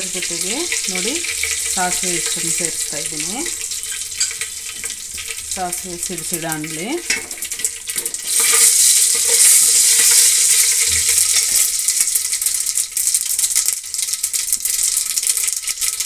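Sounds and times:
mustard seeds popping in hot oil: 0:00.0 - 0:16.0.

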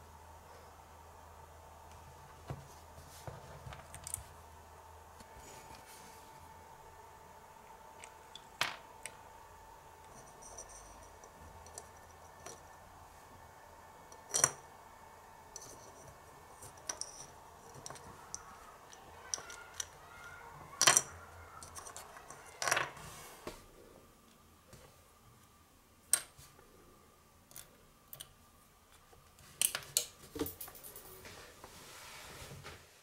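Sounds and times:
faint steady hum: 0:00.0 - 0:33.0.

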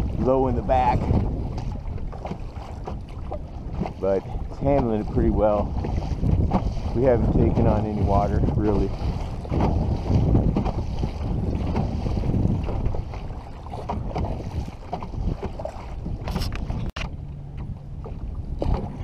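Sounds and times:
waves slapping canoe hull: 0:00.0 - 0:19.0
wind rumbling on microphone: 0:00.0 - 0:19.0.

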